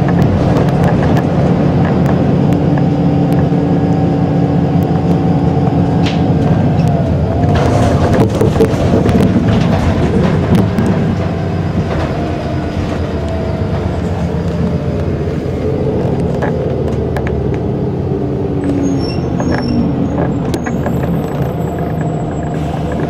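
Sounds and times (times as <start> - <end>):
bus engine and gearbox whine: 0.0 - 23.0
cabin rattles and clicks: 6.0 - 14.7.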